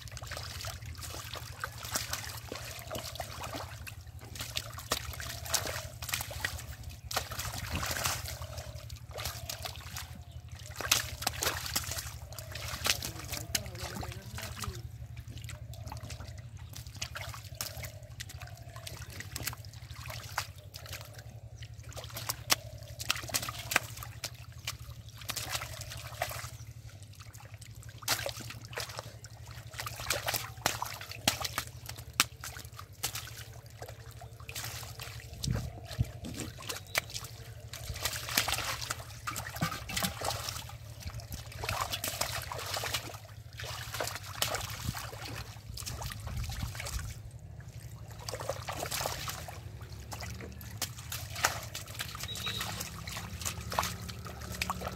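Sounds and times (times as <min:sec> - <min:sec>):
hands splashing in muddy water: 0:00.0 - 0:54.9
steady low hum: 0:00.0 - 0:54.9
water dripping: 0:00.0 - 0:54.9.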